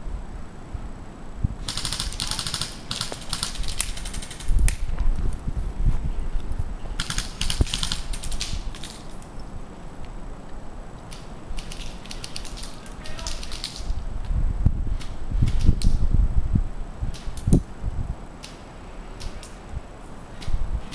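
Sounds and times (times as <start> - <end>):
airsoft gun firing full-auto: 1.6 - 4.5, 7.0 - 9.0
low rumble on microphone: 4.4 - 7.0, 13.9 - 18.3.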